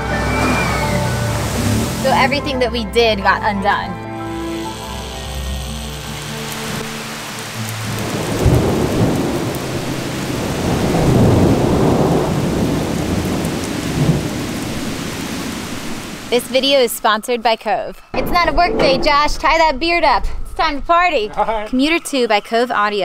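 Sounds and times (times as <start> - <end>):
heavy rain falling: 0.0 - 2.6, 5.0 - 16.7
thunder rumbling: 7.4 - 16.4.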